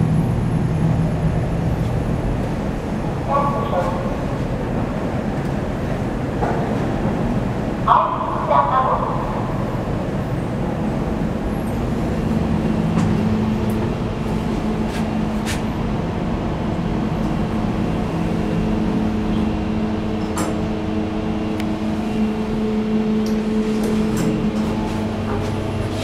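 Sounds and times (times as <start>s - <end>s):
mechanical hum: 0.0s - 26.0s.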